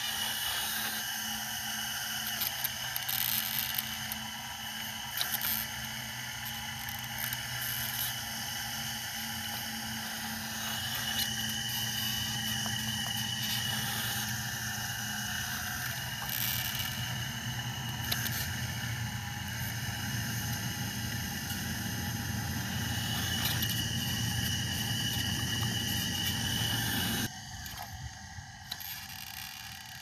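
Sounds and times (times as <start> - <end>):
hydraulic pump whine: 0.0 - 30.0
low hum: 0.0 - 30.0.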